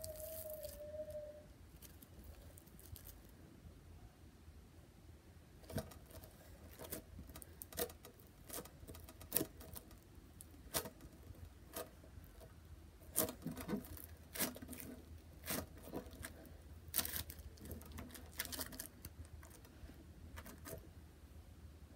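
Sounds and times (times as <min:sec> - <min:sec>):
slime crackling and popping: 0:13.0 - 0:19.6.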